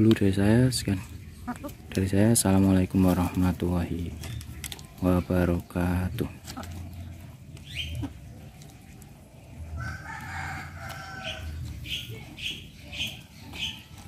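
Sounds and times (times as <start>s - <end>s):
rooster crowing: 9.8s - 11.6s.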